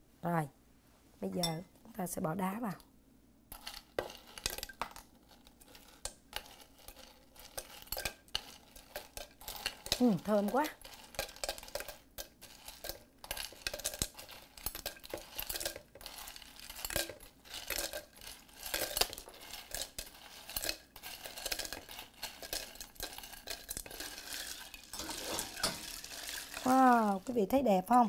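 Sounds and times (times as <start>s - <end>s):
ice cubes clinking in glass: 5.7s - 27.4s.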